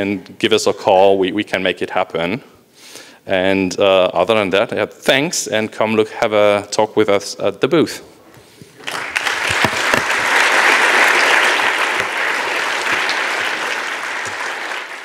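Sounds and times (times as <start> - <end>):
audience applause: 8.8 - 15.0.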